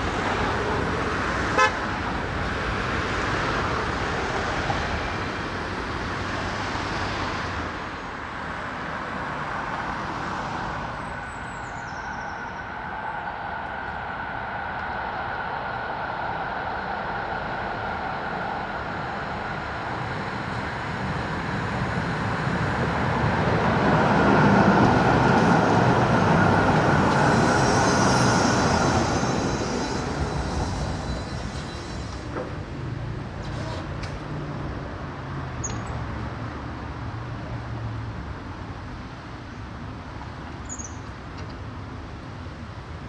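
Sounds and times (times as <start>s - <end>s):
tram passing on track: 0.0s - 43.0s
high squeal from tram wheels: 24.9s - 32.7s, 33.3s - 34.0s, 40.6s - 41.1s.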